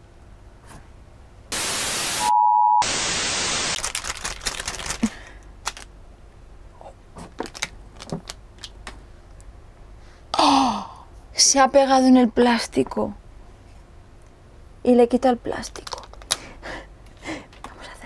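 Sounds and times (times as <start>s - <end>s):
white noise static: 1.4s - 6.7s
short steady beep: 2.1s - 2.9s
hands handling plastic film: 3.8s - 5.9s, 7.2s - 9.0s, 15.7s - 16.4s.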